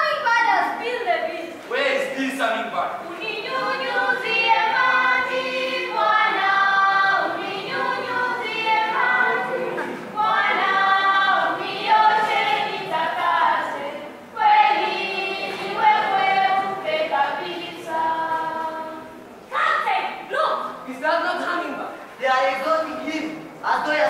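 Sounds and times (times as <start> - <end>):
young voices choir singing: 3.0 - 19.5.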